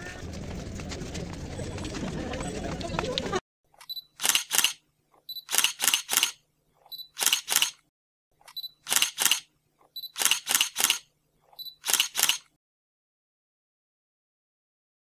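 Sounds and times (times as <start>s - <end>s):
camera focus beep: 3.8s - 4.7s, 5.3s - 7.7s, 8.5s - 9.4s, 10.0s - 12.4s
camera shutter clicks: 3.8s - 4.8s, 5.4s - 6.4s, 7.1s - 7.8s, 8.5s - 9.5s, 10.1s - 11.1s, 11.8s - 12.5s.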